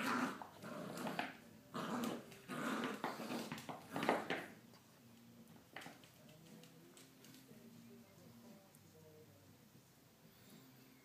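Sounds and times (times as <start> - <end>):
puppy growling in play: 0.0 - 4.6.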